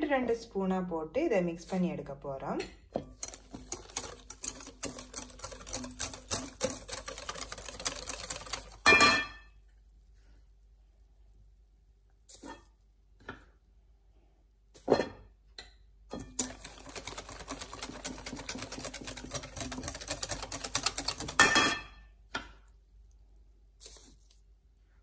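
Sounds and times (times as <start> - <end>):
whisk beating batter in glass bowl: 3.0 - 9.6, 16.2 - 21.8.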